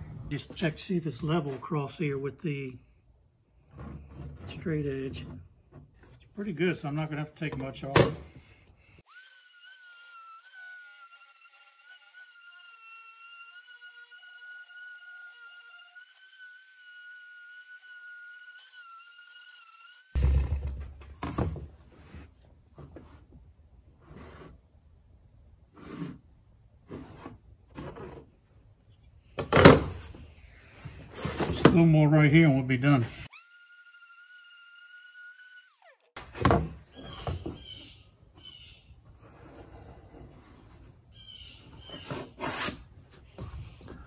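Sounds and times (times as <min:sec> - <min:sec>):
orbital sander whine: 0:09.1 - 0:20.7, 0:33.0 - 0:36.2.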